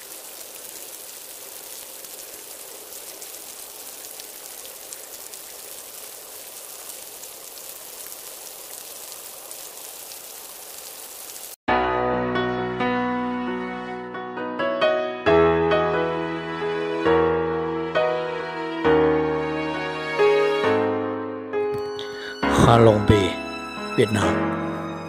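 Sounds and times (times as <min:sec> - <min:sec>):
old film crackle and hiss: 0:00.0 - 0:11.6
piano music: 0:11.7 - 0:25.0.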